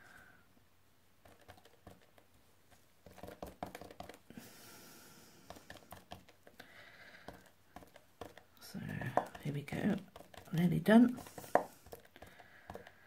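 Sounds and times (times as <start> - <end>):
dauber tapping: 7.2 - 13.0.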